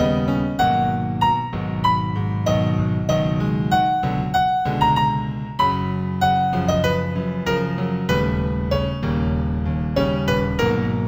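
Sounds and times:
slow piano-like keyboard melody: 0.0s - 11.0s.

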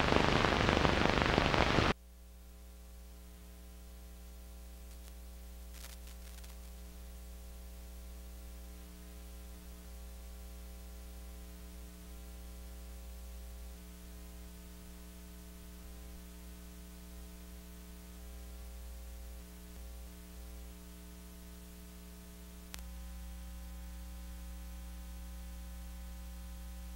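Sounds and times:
faint crackle: 0.0s - 2.0s, 4.7s - 7.4s, 13.2s - 25.0s
electrical mains hum: 0.0s - 26.9s.

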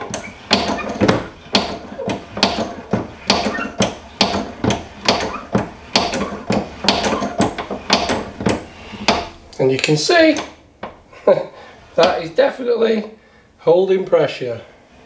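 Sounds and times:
hand pump lever clacking: 0.0s - 11.0s, 12.0s - 12.2s.

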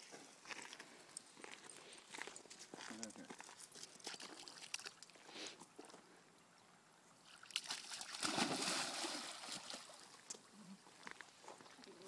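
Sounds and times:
dog splashing in water: 7.3s - 10.0s.

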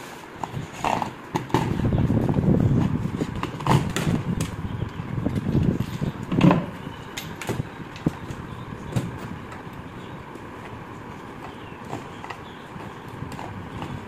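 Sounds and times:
wood and tools knocking: 5.4s - 9.7s.

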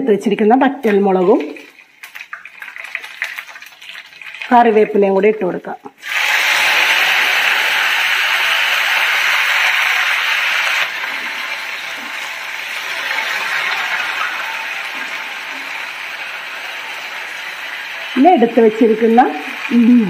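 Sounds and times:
leaves sizzling in hot oil: 6.0s - 20.0s.

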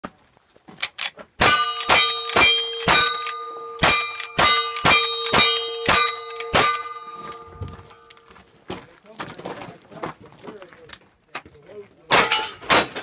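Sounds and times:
rifle shots: 1.4s - 7.4s
steel targets ringing: 1.4s - 8.3s, 12.2s - 12.9s.

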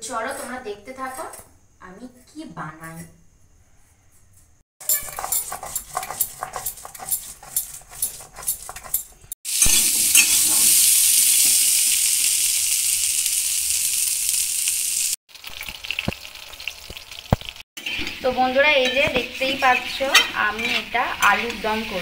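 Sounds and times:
potatoes sizzling in hot oil: 9.4s - 22.0s.

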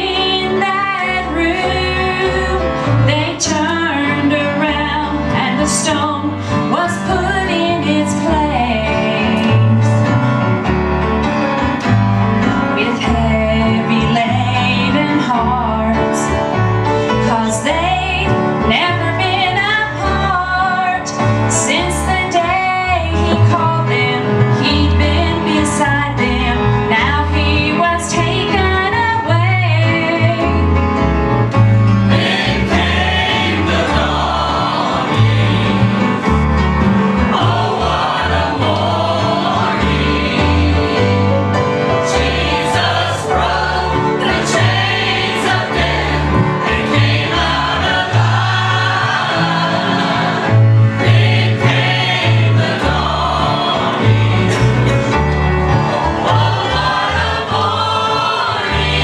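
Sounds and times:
mixed choir singing gospel: 0.0s - 12.0s, 32.0s - 59.0s
instrumental accompaniment: 0.0s - 59.0s.

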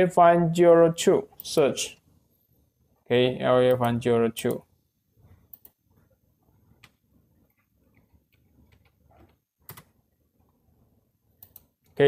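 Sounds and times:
computer mouse clicks: 5.4s - 5.8s, 11.4s - 12.0s.

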